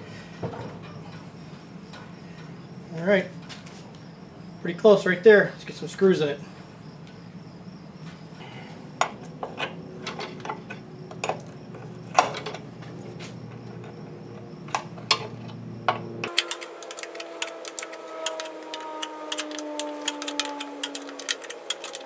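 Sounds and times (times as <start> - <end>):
ratchet wrench clicking: 19.3 - 22.0.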